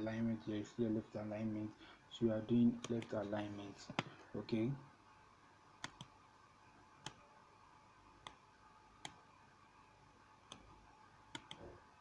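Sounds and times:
computer mouse clicks: 5.8 - 6.1, 9.0 - 9.2, 10.5 - 10.7, 11.3 - 11.7.

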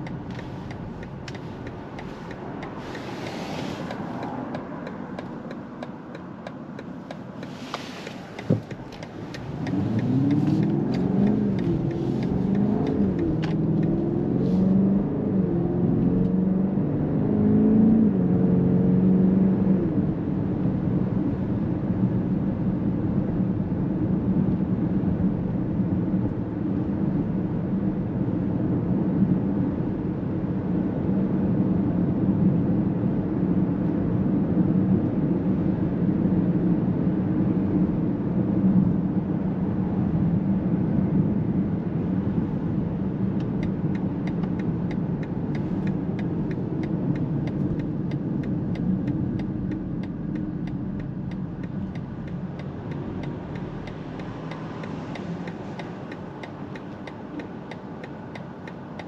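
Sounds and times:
car engine accelerating: 0.0 - 21.2, 41.1 - 59.0.

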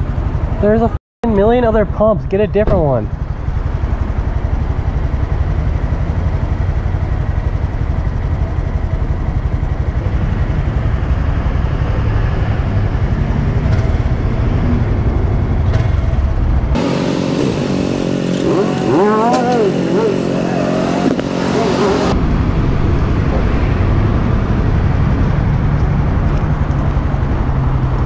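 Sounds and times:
motorcycle engine idling: 0.0 - 22.2.

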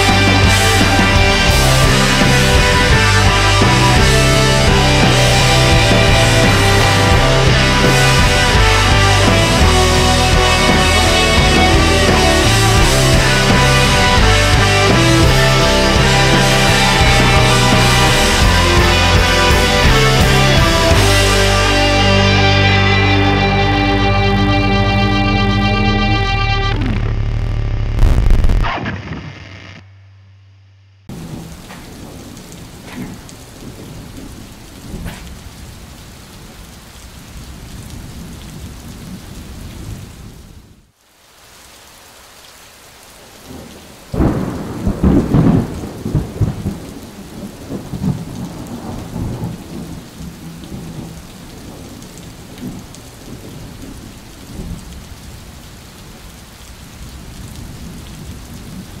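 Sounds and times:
thunder rumbling: 0.0 - 21.3, 31.1 - 40.8, 43.5 - 59.0
steady rain: 0.0 - 25.2, 31.1 - 59.0.

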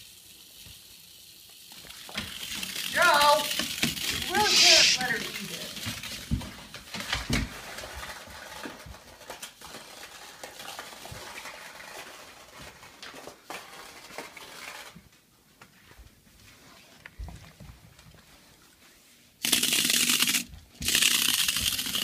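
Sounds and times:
toy vibrating motor buzzing: 0.0 - 5.9, 19.4 - 22.0.

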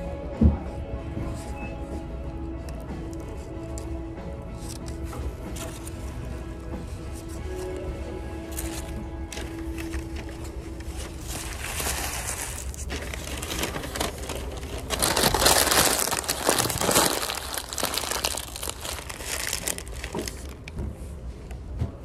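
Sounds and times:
paper wrapper crumpling: 8.4 - 20.8.

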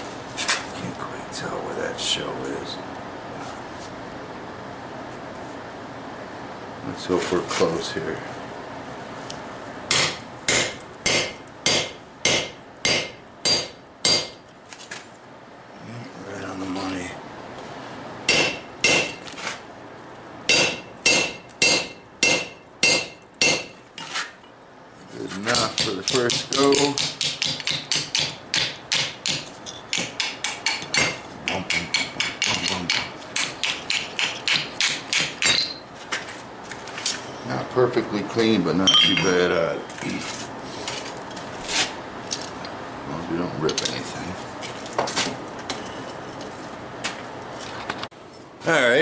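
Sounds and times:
hammer striking chisel on steel: 9.9 - 14.4, 18.3 - 19.2, 20.5 - 23.8, 25.5 - 35.8, 38.9 - 39.5.

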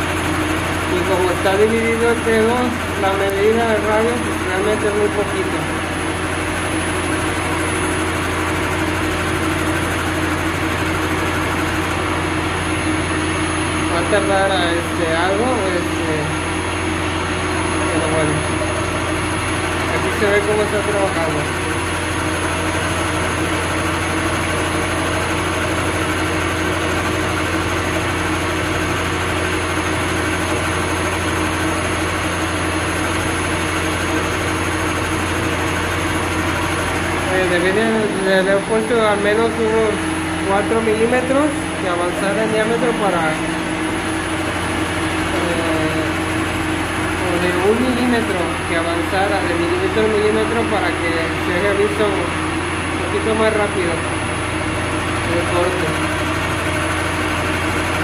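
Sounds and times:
lathe motor hum with high whine: 0.0 - 58.0.

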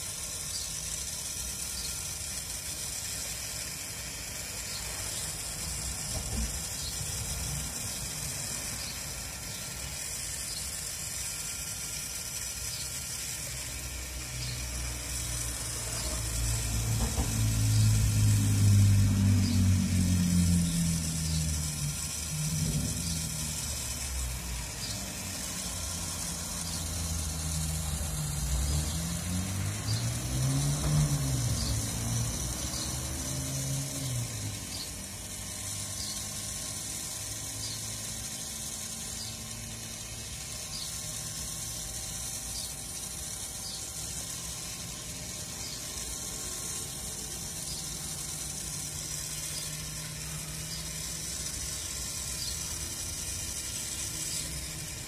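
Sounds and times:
rotisserie spit ticking: 0.0 - 55.0
louder hum rising and falling: 13.6 - 35.8.

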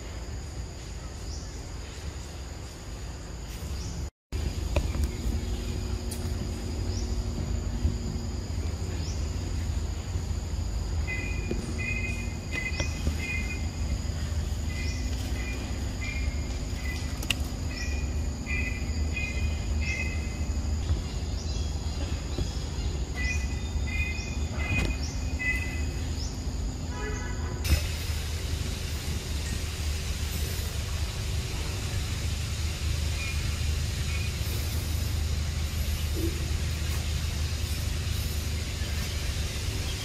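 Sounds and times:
high insect drone: 0.0 - 40.0
low steady rumble: 4.3 - 40.0.

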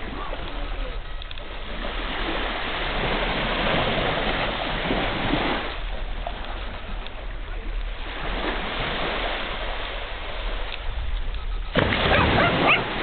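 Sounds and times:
small waves washing on sand: 0.0 - 13.0.

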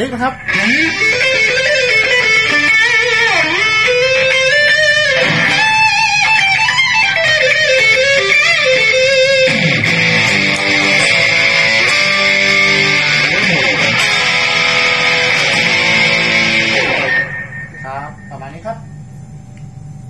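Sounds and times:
electric guitar lead line: 0.0 - 19.0.

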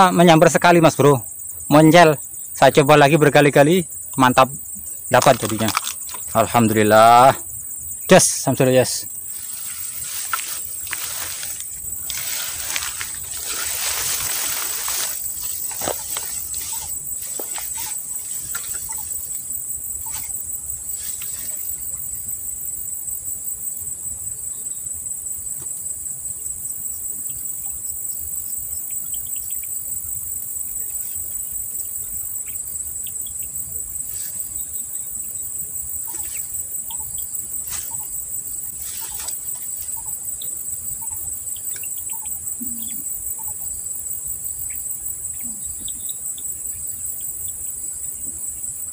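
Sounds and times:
fast pulsing insect trill: 0.0 - 48.9
insect chorus: 0.0 - 48.9
scattered clicks: 5.1 - 6.4.

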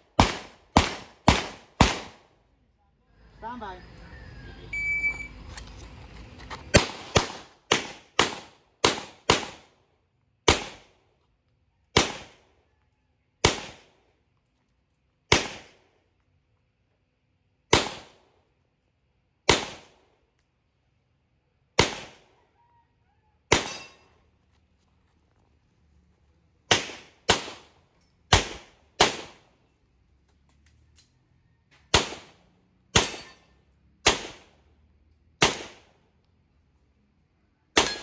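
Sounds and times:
pistol shots with echo: 0.1 - 2.3, 6.7 - 9.8, 10.5 - 11.0, 11.9 - 12.4, 13.4 - 14.0, 15.3 - 15.8, 17.7 - 18.3, 19.5 - 20.1, 21.8 - 22.3, 23.5 - 24.0, 26.7 - 29.5, 31.9 - 33.4, 34.0 - 34.6, 35.4 - 36.0, 37.8 - 38.0.

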